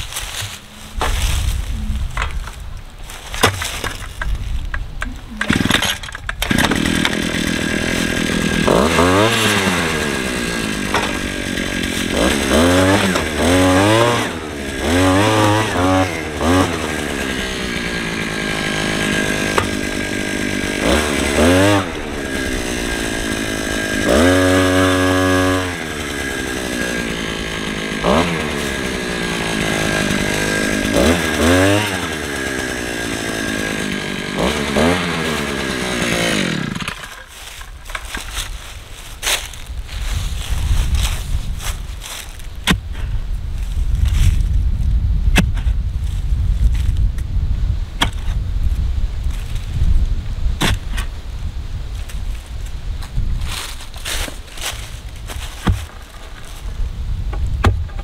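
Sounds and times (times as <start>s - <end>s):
earth auger engine revving: 5.1s - 38.5s.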